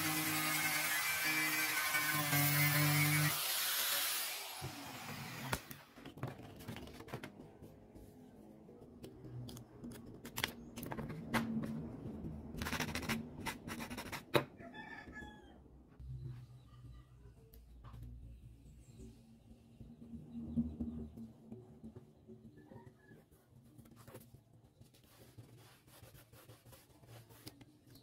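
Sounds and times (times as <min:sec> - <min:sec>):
angle grinder: 0:00.0 - 0:05.7.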